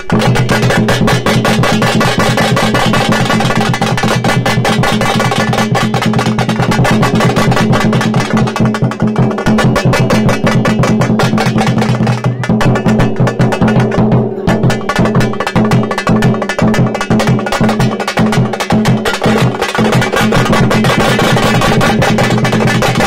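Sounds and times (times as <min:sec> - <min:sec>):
drum ensemble playing fast rhythm: 0:00.0 - 0:23.0.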